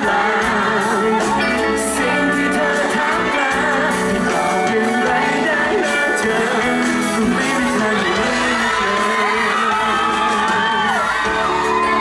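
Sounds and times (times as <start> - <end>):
man singing into a microphone: 0.0 - 11.4
bass guitar: 0.0 - 12.0.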